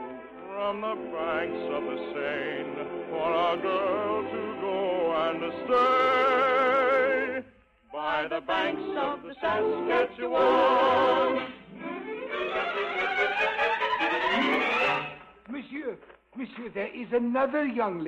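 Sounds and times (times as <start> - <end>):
operetta singing: 0.5 - 12.8
orchestra playing: 9.4 - 15.4.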